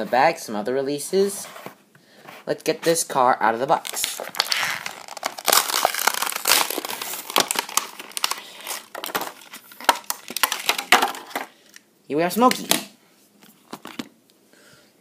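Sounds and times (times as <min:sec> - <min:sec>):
plastic packaging crinkling: 0:03.6 - 0:11.8.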